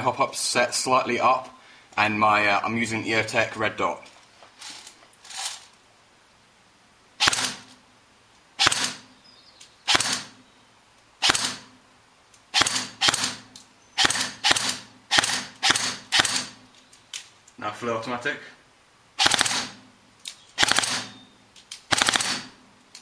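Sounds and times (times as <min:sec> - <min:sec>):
airsoft rifle shots: 0:07.2 - 0:07.8, 0:08.6 - 0:09.1, 0:09.9 - 0:10.4, 0:11.2 - 0:11.8, 0:12.5 - 0:16.7, 0:19.2 - 0:19.9, 0:20.6 - 0:21.2, 0:21.9 - 0:22.6.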